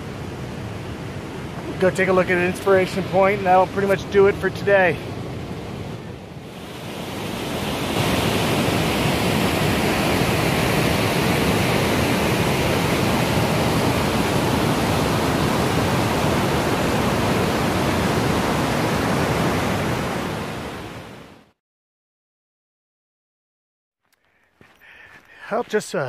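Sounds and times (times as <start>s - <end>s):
waterfall rushing over rocks: 6.6s - 20.7s.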